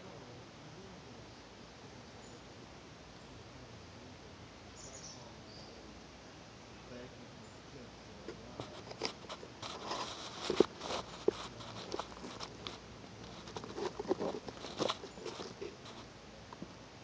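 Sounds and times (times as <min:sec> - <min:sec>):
slug chewing mushroom: 0:08.3 - 0:16.7.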